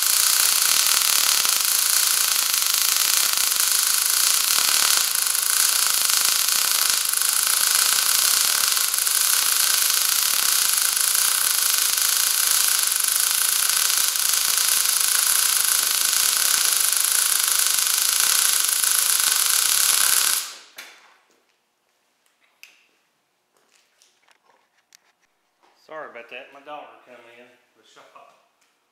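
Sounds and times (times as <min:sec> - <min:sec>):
welding arc sizzling: 0:00.0 - 0:21.0.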